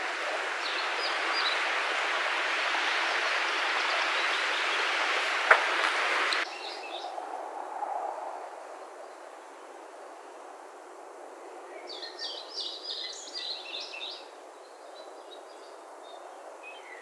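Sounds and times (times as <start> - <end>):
steady rushing noise: 0.0 - 11.3.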